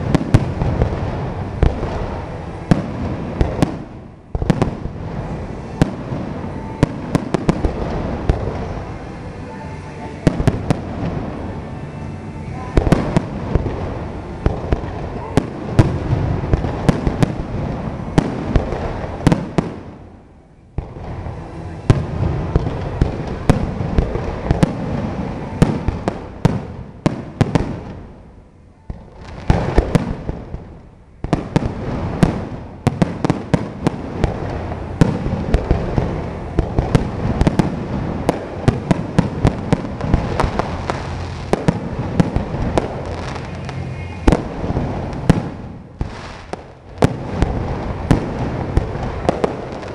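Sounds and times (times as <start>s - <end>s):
fireworks bangs and crackles: 0.0s - 49.9s.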